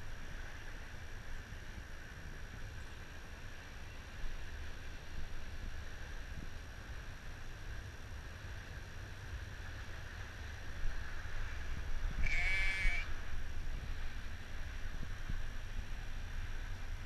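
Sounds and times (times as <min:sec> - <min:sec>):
sheep bleating: 0:12.2 - 0:13.1.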